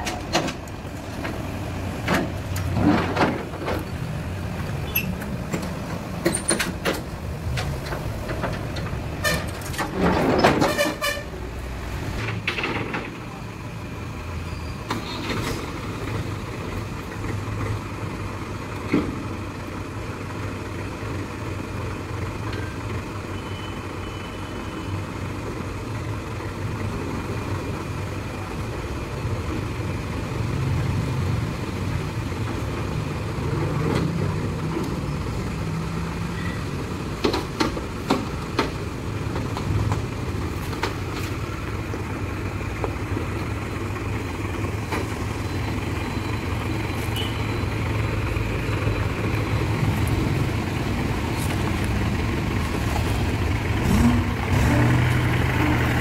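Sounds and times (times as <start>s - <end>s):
tractor diesel engine running: 0.0s - 56.0s
steel ramps clanking: 4.9s - 11.3s.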